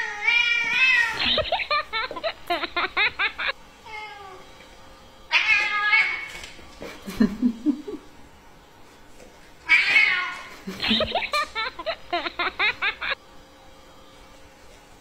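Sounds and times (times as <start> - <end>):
cat meowing: 5.3 - 6.3.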